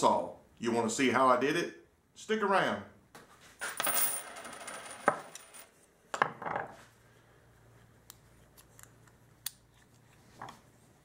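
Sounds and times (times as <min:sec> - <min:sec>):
coins clicking on wooden workbench: 0:03.6 - 0:05.7.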